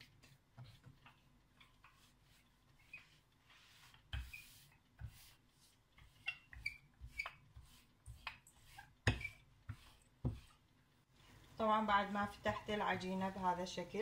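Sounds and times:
faint squeaks and rubbing: 0.2s - 10.6s.

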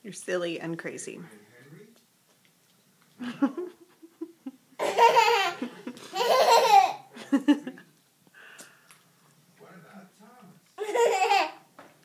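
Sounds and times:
young child laughing: 4.8s - 7.7s, 10.8s - 11.6s.

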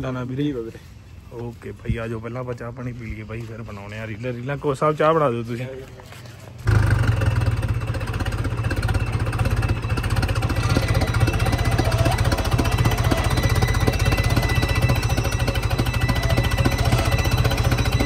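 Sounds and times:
diesel tractor engine knocking: 6.7s - 18.0s.

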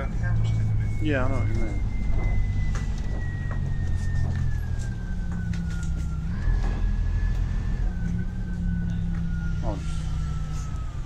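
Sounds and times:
bus diesel engine rumble: 0.0s - 11.0s
thin high whine: 0.0s - 11.0s.

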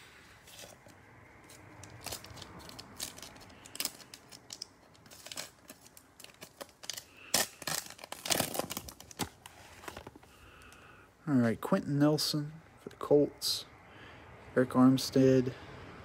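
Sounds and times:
plastic wrapper crinkling and tearing: 1.5s - 10.2s.

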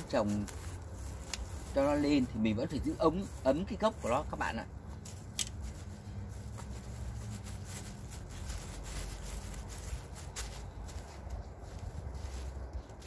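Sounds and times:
sharp plastic crackles: 0.0s - 2.2s, 4.9s - 10.6s
plastic sheeting rustling: 0.0s - 13.0s.

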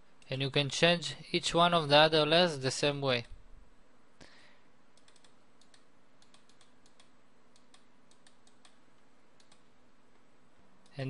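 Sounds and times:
low steady hum: 0.0s - 11.0s
computer keys and mouse clicking: 4.9s - 9.7s.

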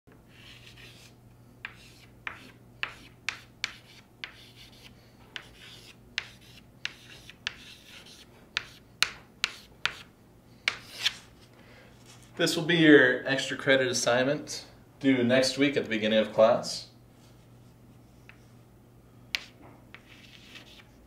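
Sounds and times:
low steady hum: 0.1s - 21.0s
chalk scraping on chalkboard: 0.3s - 10.1s, 19.3s - 21.0s
chalk tapping on board: 1.6s - 10.1s, 19.3s - 20.9s.

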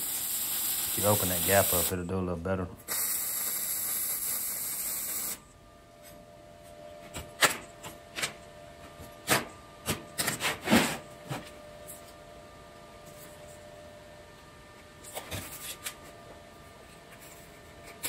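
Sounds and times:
welding arc crackling: 0.0s - 1.9s, 2.9s - 5.4s.

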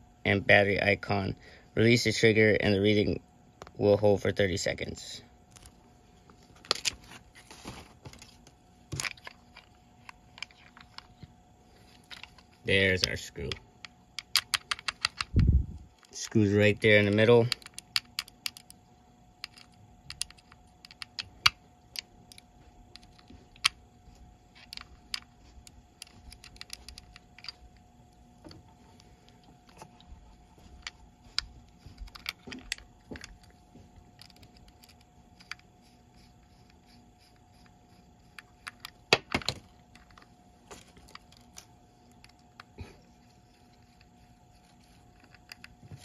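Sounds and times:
screwdriver clicks and taps: 19.4s - 22.4s, 26.0s - 27.6s, 30.6s - 33.6s.

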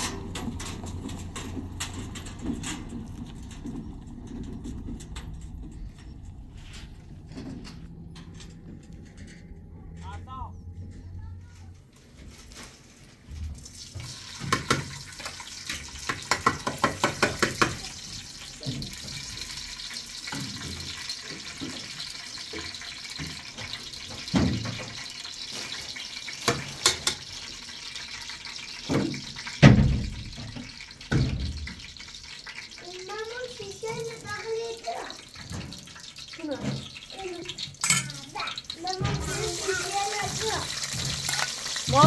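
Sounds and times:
cookware clattering on a stove: 13.7s - 42.0s.

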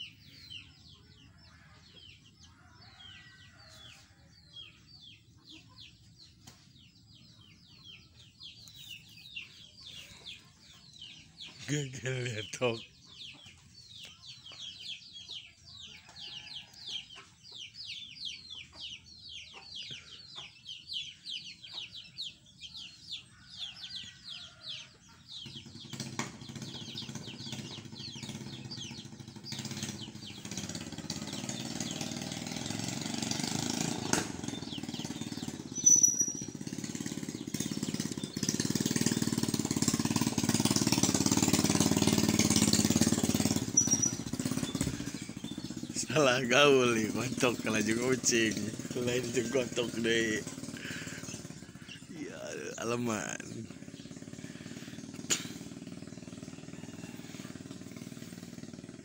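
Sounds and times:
chicks peeping: 0.0s - 59.0s
engine running: 25.3s - 59.0s.

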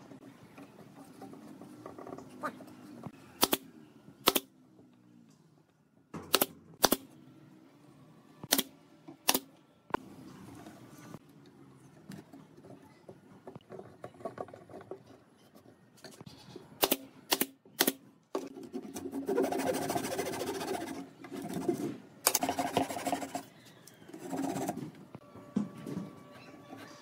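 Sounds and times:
hand saw cutting wood: 18.9s - 21.0s.

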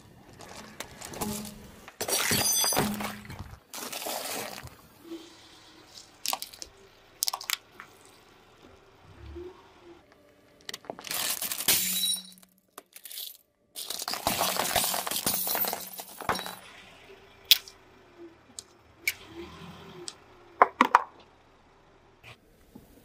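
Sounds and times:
plate cracking and breaking: 10.7s - 16.3s
coins clinking and scraping: 11.0s - 16.6s.

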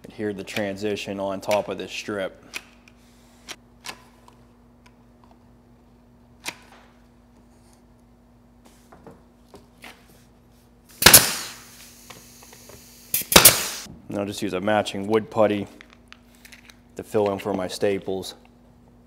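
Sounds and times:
staple gun firing: 11.0s - 11.6s, 13.2s - 13.9s.

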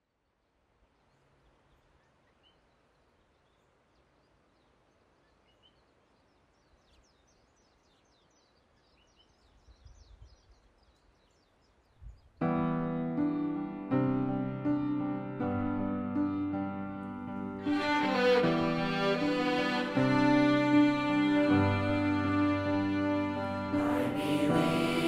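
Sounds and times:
birds chirping: 0.8s - 12.4s
piano playing sustained chords: 12.4s - 25.0s.

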